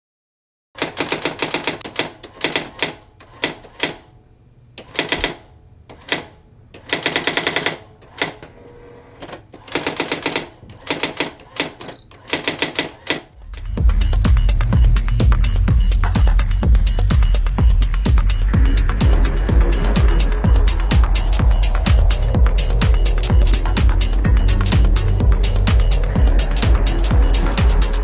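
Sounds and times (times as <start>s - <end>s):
typewriter keystrokes: 0.8s - 4.0s, 4.8s - 8.4s, 9.2s - 13.7s.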